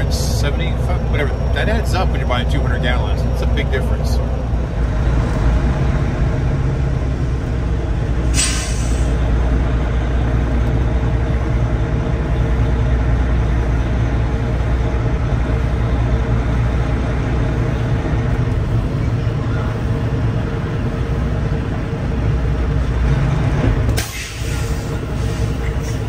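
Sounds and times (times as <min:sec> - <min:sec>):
diesel truck engine idling: 0:00.0 - 0:26.0
air brakes hiss: 0:08.3 - 0:09.2, 0:24.0 - 0:26.0.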